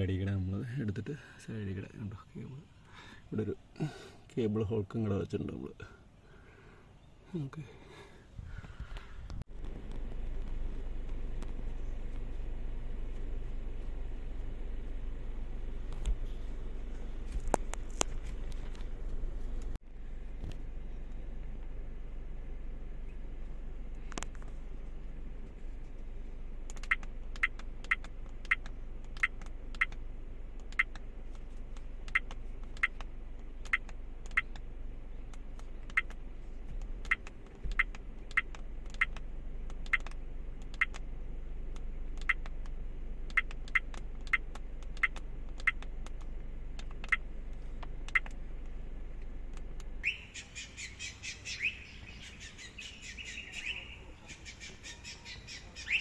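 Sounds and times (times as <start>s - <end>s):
steady low hum: 0.0s - 56.0s
chirping bird calls: 50.0s - 56.0s.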